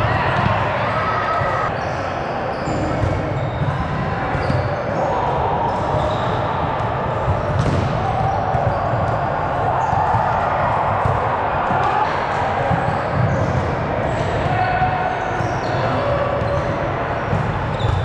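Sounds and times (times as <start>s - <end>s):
players' voices: 0.0s - 18.0s
shoes squeaking on court: 4.3s - 4.9s, 17.7s - 18.0s
volleyball being hit and bouncing: 5.8s - 15.6s.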